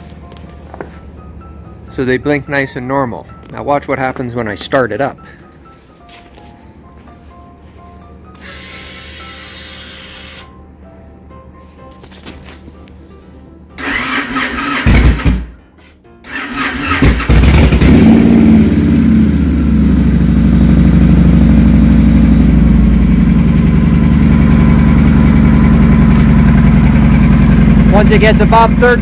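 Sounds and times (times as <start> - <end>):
electric starter cranking: 8.3 - 10.5, 13.8 - 15.5, 16.2 - 18.0
motorcycle engine revving and idling: 13.9 - 15.5, 16.6 - 29.0.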